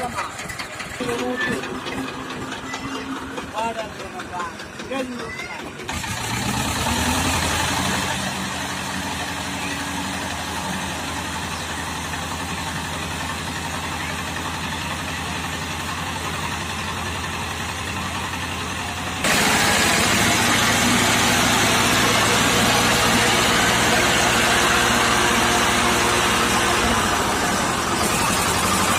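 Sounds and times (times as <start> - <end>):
tractor diesel engine idling: 0.0 - 28.9.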